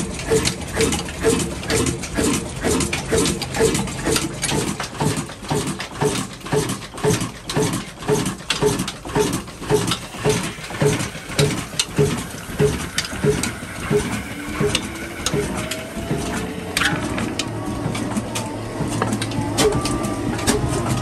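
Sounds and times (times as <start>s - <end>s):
single-cylinder oil engine beating: 0.0s - 21.0s
faint rising whine: 11.1s - 21.0s.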